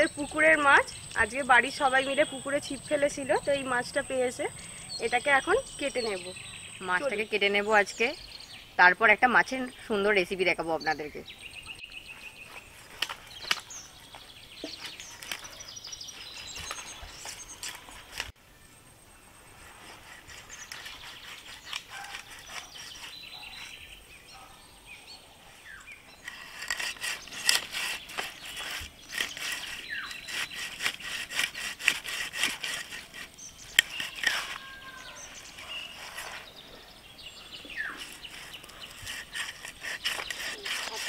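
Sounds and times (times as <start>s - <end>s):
birds chirping: 0.0s - 41.0s
fish scales being scraped: 19.8s - 23.4s, 26.2s - 35.0s, 38.0s - 41.0s.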